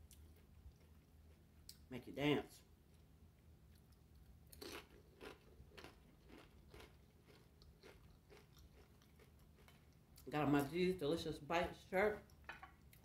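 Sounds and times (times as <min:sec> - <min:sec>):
faint crunching of tortilla chips: 0:02.9 - 0:10.8.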